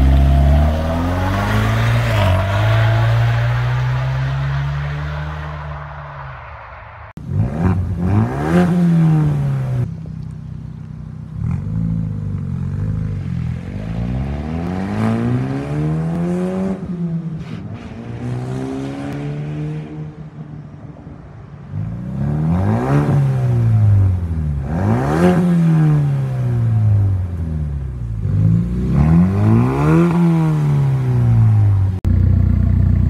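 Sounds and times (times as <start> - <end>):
car engine revving: 7.1 - 9.9, 11.3 - 20.2, 21.8 - 33.0.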